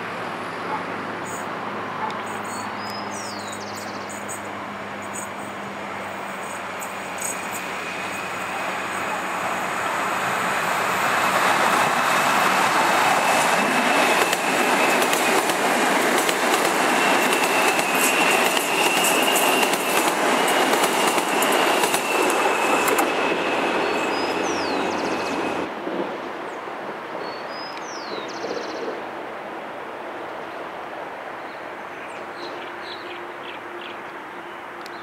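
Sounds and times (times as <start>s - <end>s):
train wheels running on rail: 0.3s - 27.2s
high wheel squeal: 5.2s - 25.7s.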